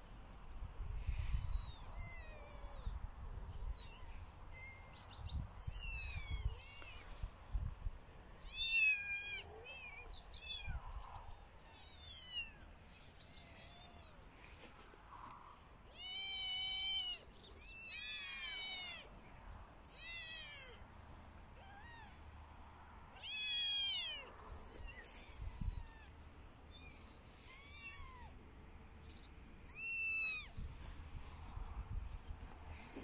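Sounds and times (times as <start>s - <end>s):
kittens mewing: 21.6s - 22.2s, 23.1s - 26.2s, 27.4s - 28.4s.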